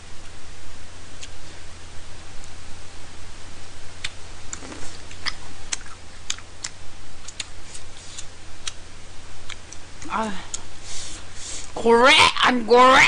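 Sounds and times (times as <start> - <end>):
low electrical hum: 0.0 - 13.0
chewing with wet mouth clicks: 4.0 - 8.8, 9.4 - 9.8.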